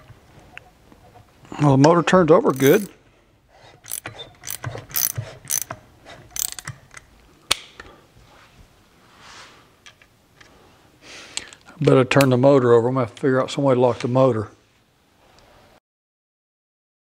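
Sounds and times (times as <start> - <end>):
ratchet wrench clicking: 2.5 - 2.9, 3.8 - 6.8.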